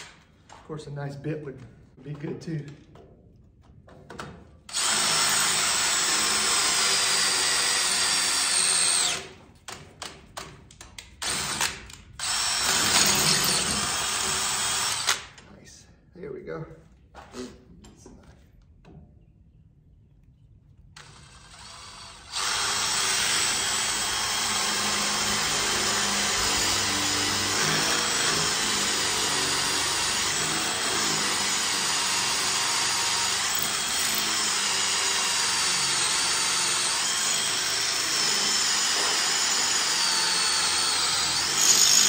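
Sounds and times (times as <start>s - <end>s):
cordless drill boring through metal: 4.7s - 9.3s, 11.2s - 15.3s, 21.0s - 42.0s.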